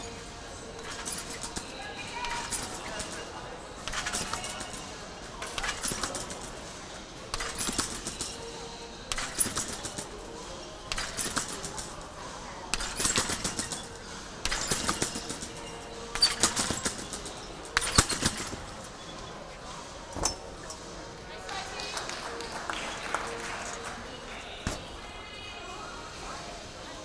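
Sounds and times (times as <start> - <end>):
trampoline springs rattling: 0.0 - 20.9.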